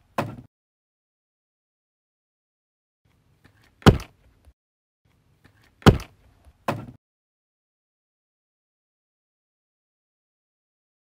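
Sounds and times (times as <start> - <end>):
punch impact effects: 3.8 - 4.1.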